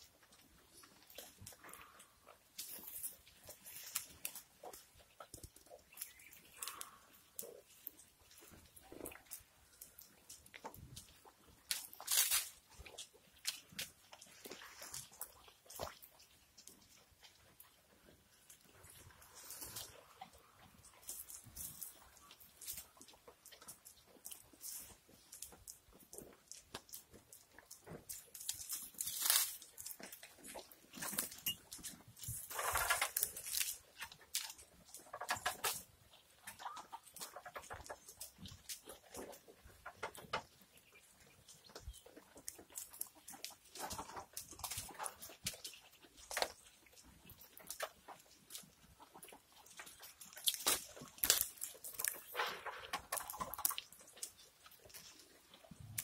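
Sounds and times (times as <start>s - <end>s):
goats crunching bites: 0.0s - 56.0s
rustling and knocks at troughs: 0.0s - 56.0s
leaves rustling: 2.6s - 4.5s, 11.6s - 15.2s, 19.0s - 20.2s, 28.3s - 31.4s, 32.2s - 34.6s.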